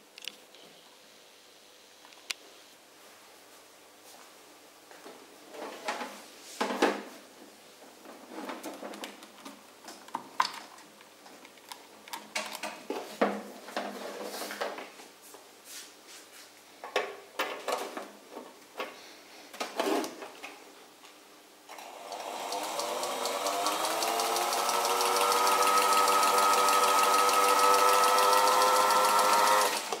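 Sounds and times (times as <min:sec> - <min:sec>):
clicks and knocks of handling: 0:08.1 - 0:14.0
sewing machine motor running: 0:21.7 - 0:30.0.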